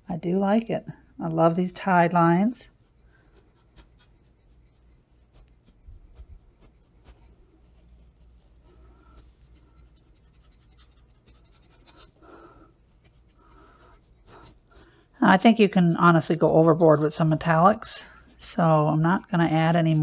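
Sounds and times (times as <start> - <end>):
low steady hum: 0.0 - 20.0
tool clicking and scratching on tile: 9.5 - 14.9.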